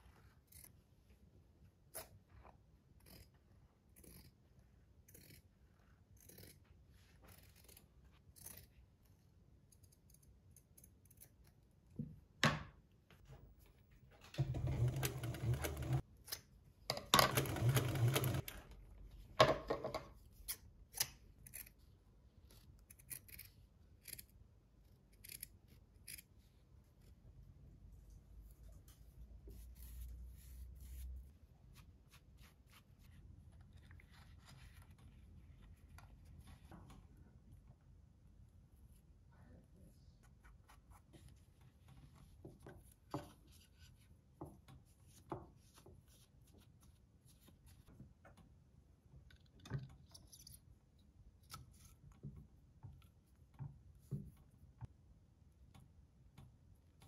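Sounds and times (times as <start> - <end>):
scissors snipping fabric: 2.9 - 11.6, 22.6 - 24.4.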